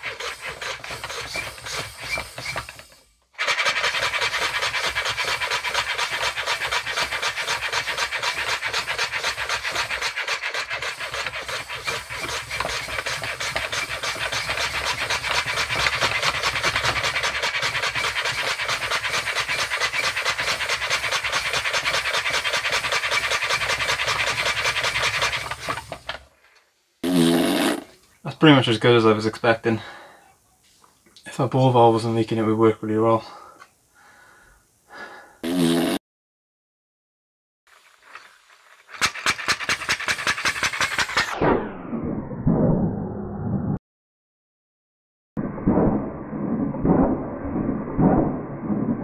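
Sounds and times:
compressed-air engine puffing: 0:00.0 - 0:26.2, 0:27.0 - 0:27.9, 0:33.2 - 0:36.0, 0:38.0 - 0:41.4
valve leaking air: 0:00.0 - 0:26.2, 0:27.0 - 0:28.0, 0:34.8 - 0:36.0.

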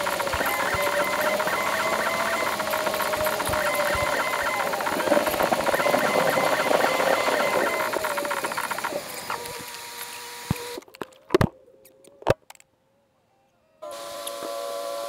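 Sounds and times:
dense fast rattle: 0:00.0 - 0:09.6
high-pitched buzzing hum: 0:00.0 - 0:10.8.

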